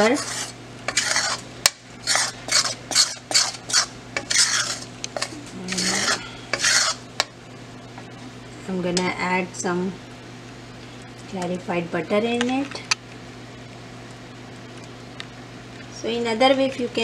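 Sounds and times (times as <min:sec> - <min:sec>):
metal spatula scraping a pan: 0:00.0 - 0:07.0.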